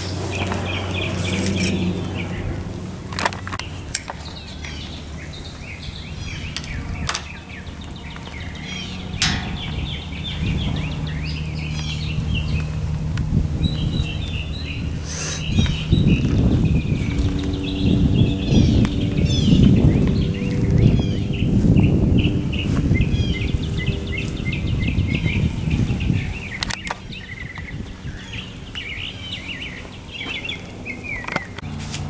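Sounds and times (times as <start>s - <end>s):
birds chirping and calling: 0.0s - 32.0s
steady low hum: 0.0s - 32.0s.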